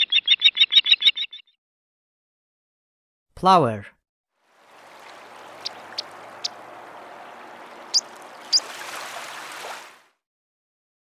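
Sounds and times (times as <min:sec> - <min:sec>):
plover calling: 0:04.6 - 0:09.2.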